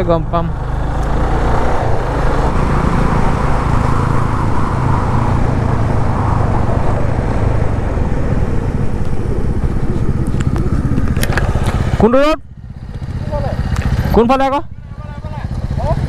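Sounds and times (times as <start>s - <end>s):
motorcycle engine running: 0.0s - 6.7s, 7.5s - 16.0s
wind noise on microphone: 1.4s - 12.0s.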